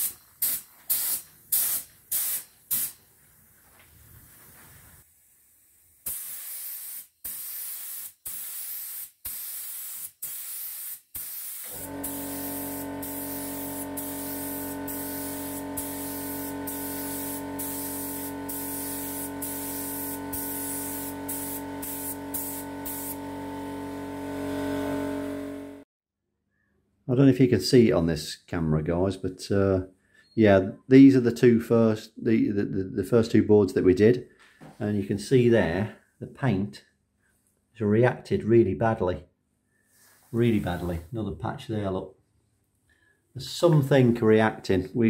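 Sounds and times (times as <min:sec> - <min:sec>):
spray gun hissing: 0:00.0 - 0:03.0, 0:04.9 - 0:25.8
air compressor motor hum: 0:11.6 - 0:25.8.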